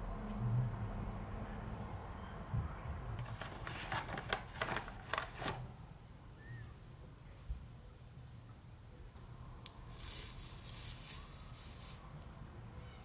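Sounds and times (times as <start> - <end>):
tape and paper crackling: 3.2 - 5.7, 9.6 - 12.4.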